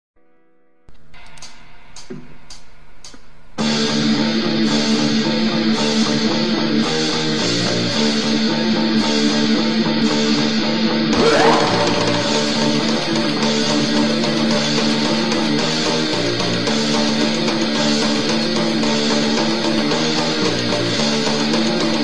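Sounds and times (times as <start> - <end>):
drumstick count-in ticks: 1.2 - 3.3
thrash metal band playing: 11.1 - 13.5.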